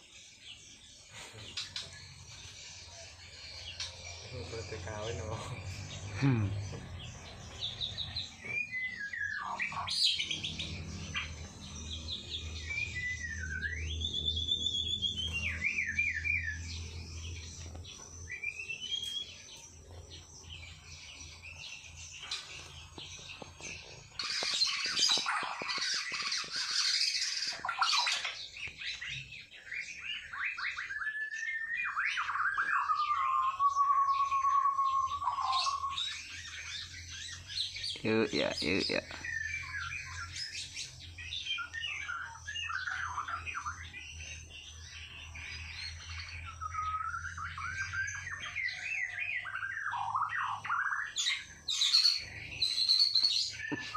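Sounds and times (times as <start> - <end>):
bird trills: 0.0 - 53.9
harsh scratchy bird chatter: 0.9 - 31.0, 35.0 - 53.9
bird whistling: 7.9 - 16.9, 24.0 - 44.0, 46.0 - 53.9.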